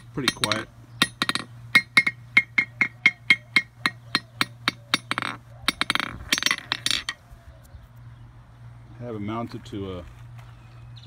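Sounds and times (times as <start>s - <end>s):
metal clinking rattles: 0.0s - 7.2s.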